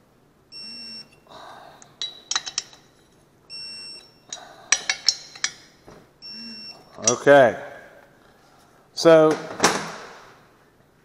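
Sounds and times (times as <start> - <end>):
electronic beeps: 0.5 - 1.2, 3.5 - 4.3, 6.2 - 7.0
wrench clicking: 4.3 - 5.6.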